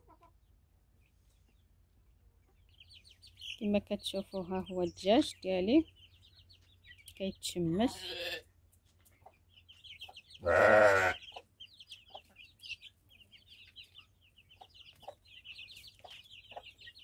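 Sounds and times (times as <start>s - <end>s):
chicks peeping: 0.0s - 17.0s
loud animal call: 10.4s - 11.3s.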